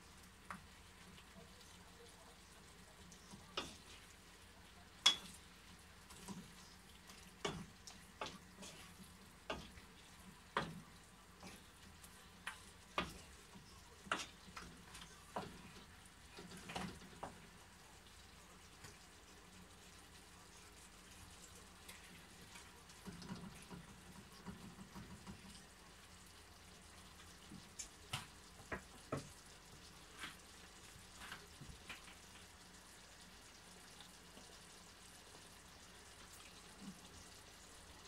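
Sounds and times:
faint sizzle: 0:00.0 - 0:38.0
spatula knocking and scraping pan: 0:07.1 - 0:11.7, 0:12.5 - 0:13.4, 0:14.0 - 0:15.7.

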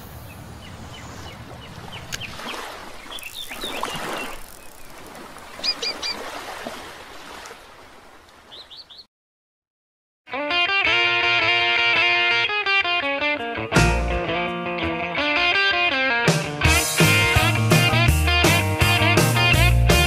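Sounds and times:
small birds chirping: 0:00.0 - 0:06.3, 0:08.4 - 0:09.1
steady outdoor hiss: 0:00.0 - 0:06.3.

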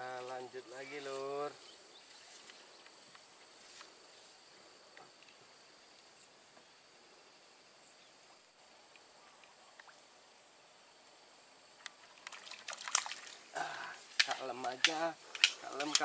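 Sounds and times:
insects singing: 0:00.0 - 0:16.0
faint ticks: 0:02.4 - 0:04.0, 0:08.8 - 0:10.0, 0:11.8 - 0:13.1.

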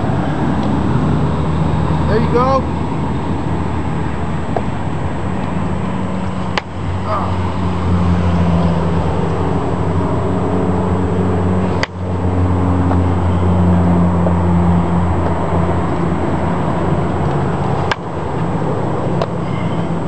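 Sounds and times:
steady low hum: 0:00.0 - 0:20.0
bat hitting baseball: 0:06.4 - 0:06.8.

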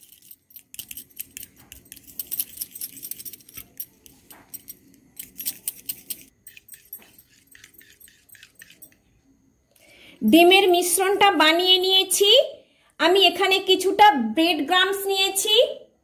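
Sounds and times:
fork beating eggs in glass bowl: 0:00.0 - 0:09.1.

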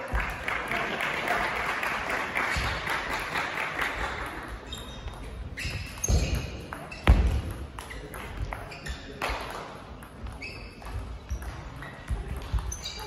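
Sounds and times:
spectators clapping: 0:00.0 - 0:04.6.

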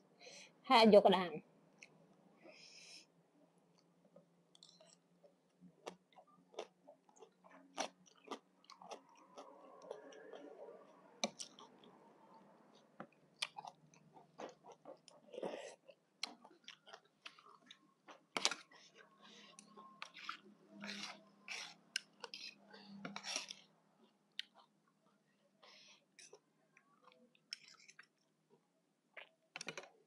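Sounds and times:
close-up wet chewing: 0:05.8 - 0:12.0, 0:12.6 - 0:23.7.

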